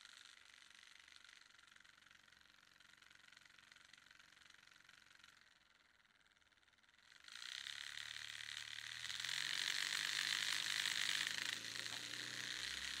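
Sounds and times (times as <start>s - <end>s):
high rattling buzz: 7.2s - 13.0s.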